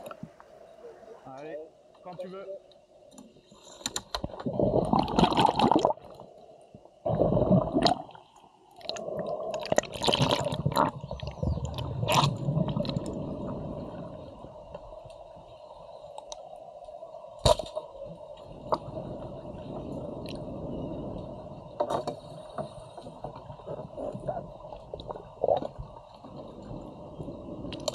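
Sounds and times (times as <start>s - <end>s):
underwater bubbling and gurgling: 3.2s - 27.9s
water splashing: 8.8s - 14.4s.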